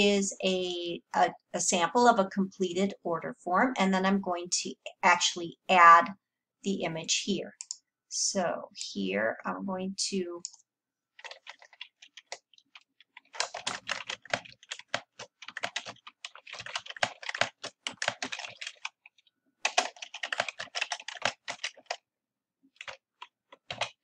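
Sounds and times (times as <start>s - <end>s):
typing on computer keyboard: 11.2s - 22.0s, 22.7s - 24.0s.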